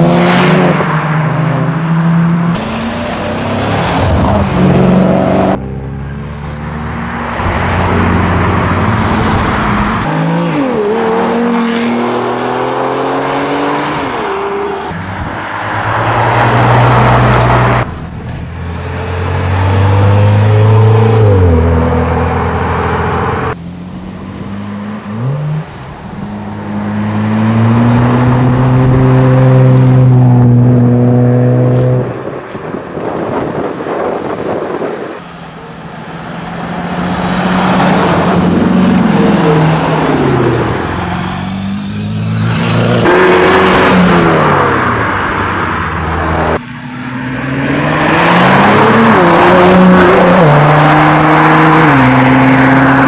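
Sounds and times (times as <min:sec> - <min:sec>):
sports car engines revving: 0:00.0 - 0:53.0.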